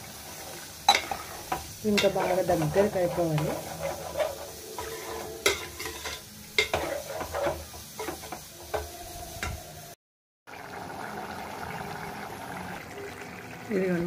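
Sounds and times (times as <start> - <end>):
ladle stirring and scraping pot: 0.1 - 9.6
curry bubbling: 10.5 - 14.0.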